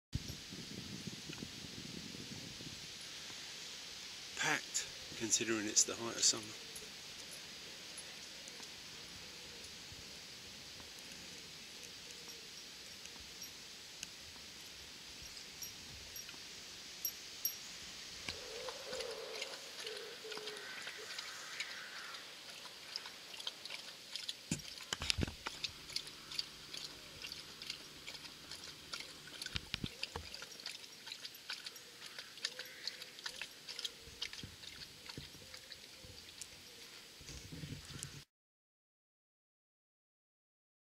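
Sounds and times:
dog lapping water: 18.9s - 36.4s.

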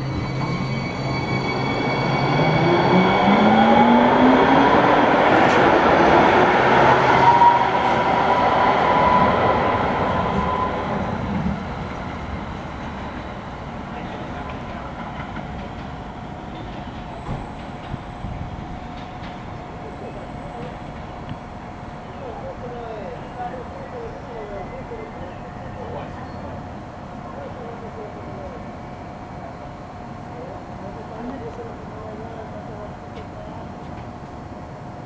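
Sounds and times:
train wheels rumbling on rails: 2.2s - 22.8s.

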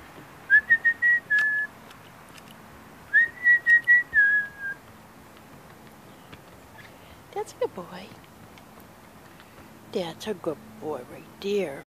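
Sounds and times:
person whistling for a dog: 0.5s - 1.7s, 3.1s - 4.8s.

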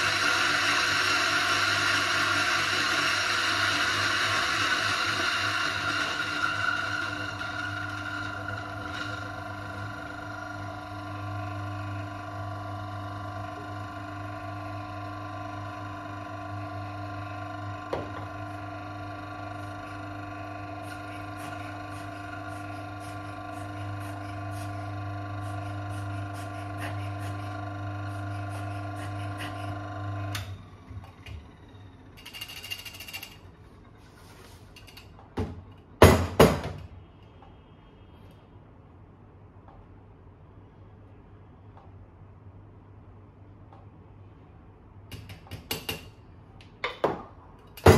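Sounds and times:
coffee grinder motor humming: 0.0s - 33.5s
portafilter knocking on counter: 17.9s - 18.3s, 35.4s - 36.8s, 46.8s - 47.9s.

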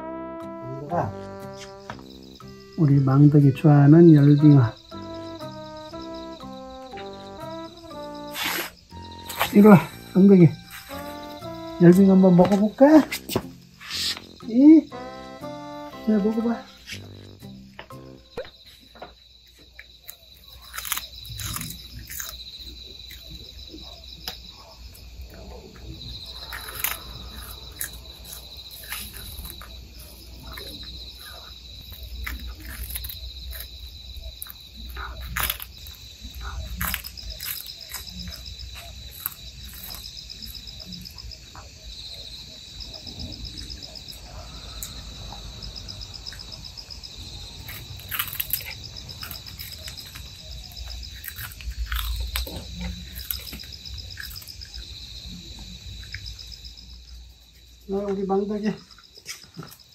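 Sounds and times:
crickets chirping: 0.0s - 59.9s
cat chewing and crunching: 19.5s - 41.3s, 47.2s - 56.6s.

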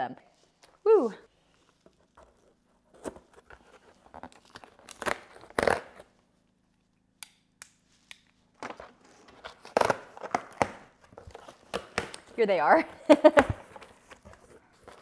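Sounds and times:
packaging crinkling: 1.6s - 6.2s
packing tape tearing: 3.0s - 6.1s, 8.1s - 12.2s.

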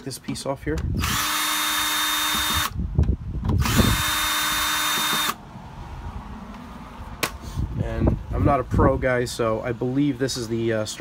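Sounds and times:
drill-driver running: 0.9s - 2.8s, 3.5s - 5.4s.

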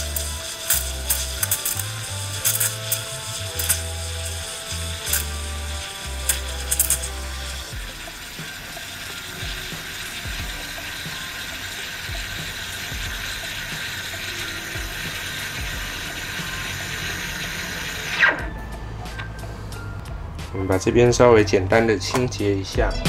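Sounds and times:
steam wand hissing in milk: 0.0s - 18.4s.

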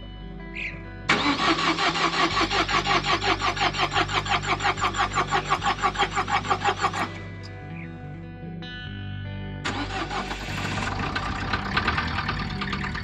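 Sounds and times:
starter motor cranking engine: 1.1s - 7.3s, 9.7s - 13.0s.

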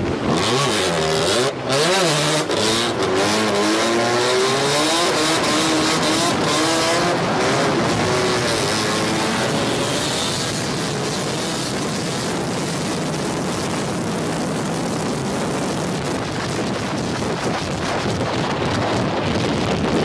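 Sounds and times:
car engine revving hard: 0.1s - 12.2s.

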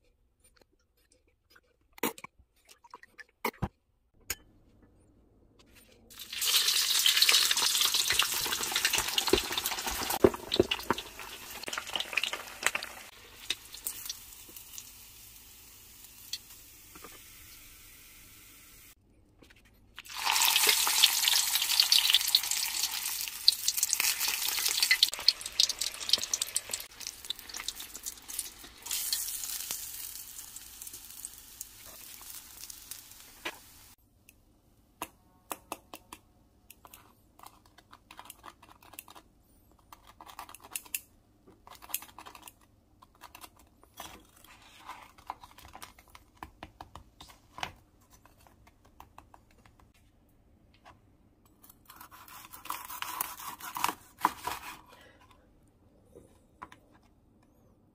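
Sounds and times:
pork sizzling in hot oil: 6.1s - 19.0s, 20.1s - 34.0s
crackles of fried pork: 6.2s - 14.9s, 20.1s - 34.0s.

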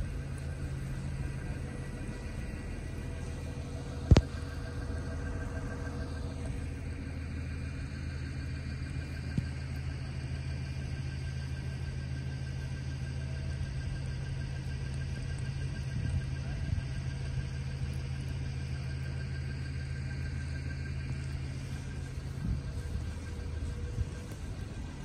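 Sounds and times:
bus engine and drive whine: 0.0s - 25.0s
low rumble: 0.0s - 25.0s.

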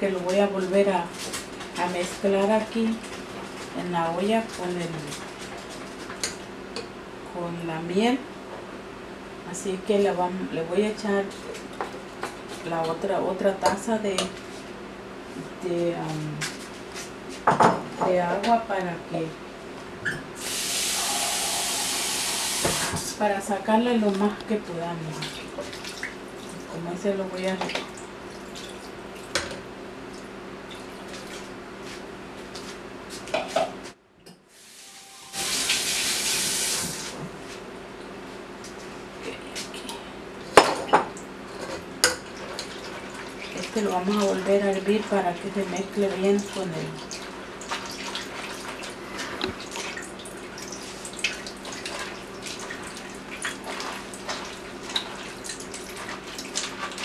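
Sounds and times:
loud steady hiss: 20.4s - 23.0s, 34.5s - 37.2s
steady low hum: 37.0s - 47.7s.

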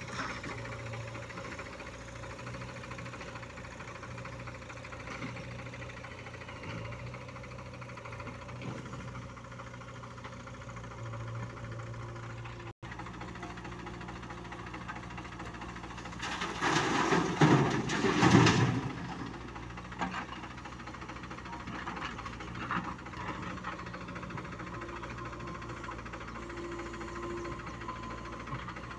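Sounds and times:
diesel engines running: 0.0s - 28.9s
scraping and clatter: 16.2s - 19.3s.

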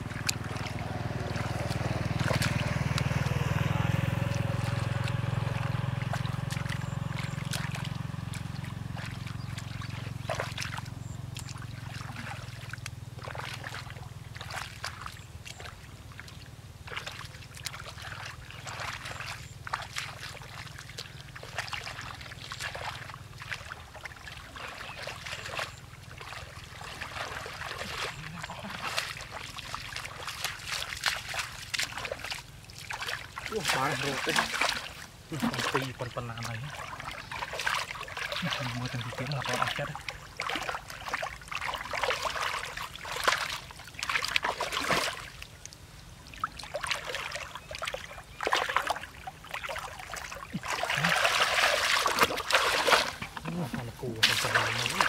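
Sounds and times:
low steady drone: 0.0s - 14.5s
muddy water splashing: 0.0s - 55.0s.

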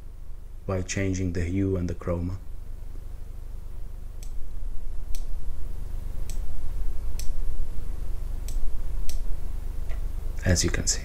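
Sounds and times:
steady low hum: 0.0s - 11.0s
computer mouse clicking: 7.2s - 7.4s, 8.5s - 9.2s.

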